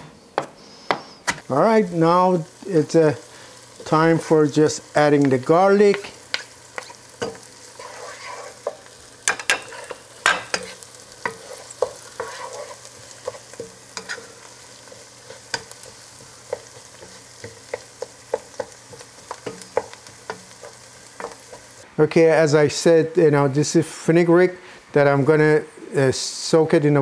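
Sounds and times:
onion frying sizzle: 0:00.6 - 0:23.0
spatula knocking and scraping pan: 0:05.1 - 0:21.8.

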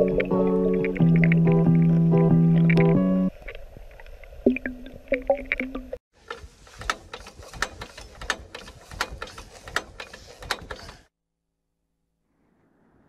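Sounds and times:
sharp mechanical clicks: 0:06.3 - 0:11.1.

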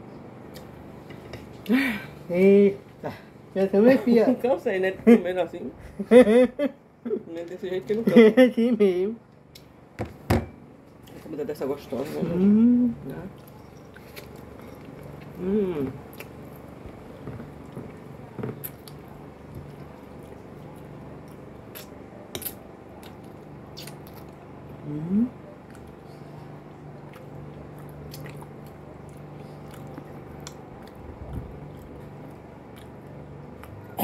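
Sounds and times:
people chewing: 0:13.3 - 0:24.8, 0:25.6 - 0:34.0
person humming mm: 0:15.4 - 0:16.0, 0:24.8 - 0:25.5.

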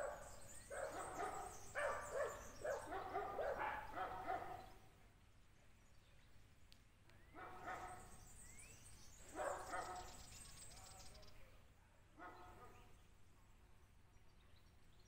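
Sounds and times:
dog barking faintly: 0:00.0 - 0:04.8, 0:09.3 - 0:10.2, 0:12.1 - 0:13.0.

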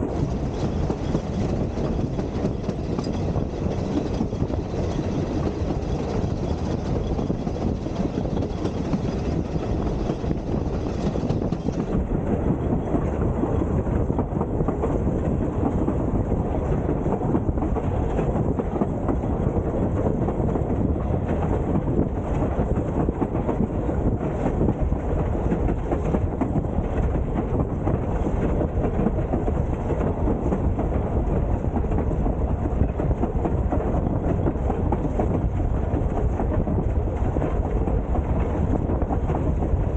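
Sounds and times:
train wheels rumbling on rails: 0:00.0 - 0:39.9
wind on microphone: 0:00.0 - 0:39.9
faint rail clicks: 0:00.1 - 0:39.9.

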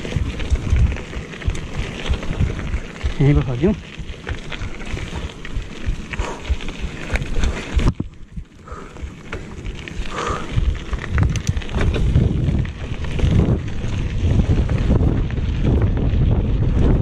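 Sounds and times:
mountain bike rumble and rattle: 0:00.0 - 0:17.0
wind buffeting microphone: 0:00.0 - 0:17.0
scattered clicks: 0:09.2 - 0:13.4.

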